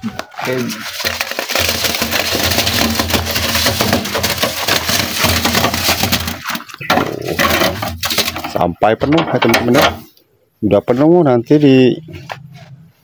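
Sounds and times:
concrete scraping over steel: 0.3 - 10.2.

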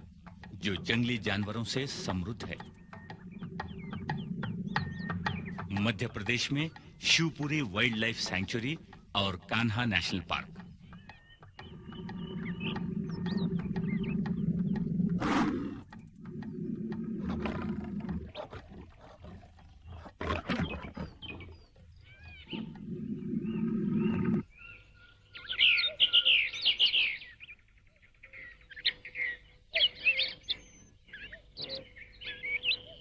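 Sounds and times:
birds chirping: 0.0 - 33.0
big cat growling: 11.6 - 24.5.

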